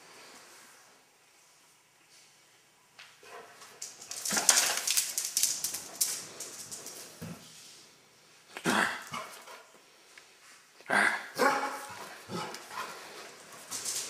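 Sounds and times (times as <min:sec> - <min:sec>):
dog scuffling and rustling: 0:03.6 - 0:07.6
dog barking: 0:11.3 - 0:12.6.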